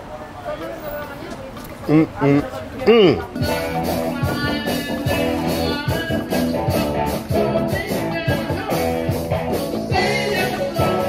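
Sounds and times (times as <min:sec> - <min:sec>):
rock and roll band music: 0:03.3 - 0:11.0.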